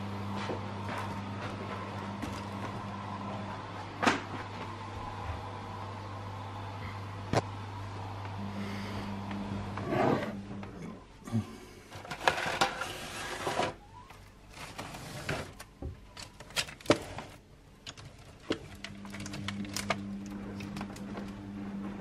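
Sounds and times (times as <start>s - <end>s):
steady low hum: 0.0s - 12.2s, 17.4s - 22.0s
hands rummaging in cupboard: 14.5s - 20.0s.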